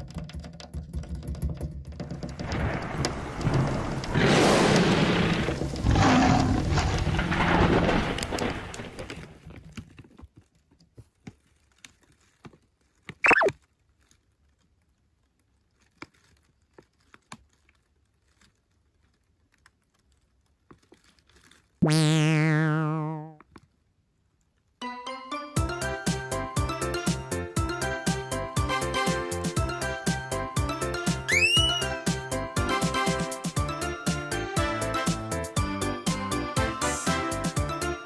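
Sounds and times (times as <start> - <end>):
short high blip: 13.3 - 13.5, 21.8 - 23.4, 31.3 - 31.9
warbling boing effect: 13.3 - 13.5, 21.8 - 23.4.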